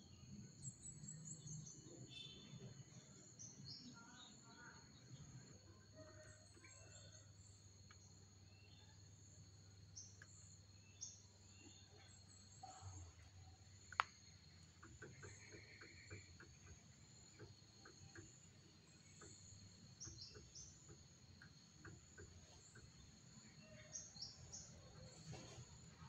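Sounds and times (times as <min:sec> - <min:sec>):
soft ticks: 0:13.9 - 0:14.2.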